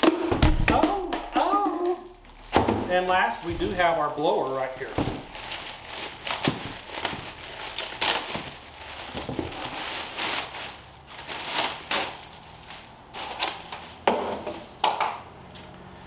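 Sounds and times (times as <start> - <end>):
plastic bag crinkling: 1.4 - 14.0.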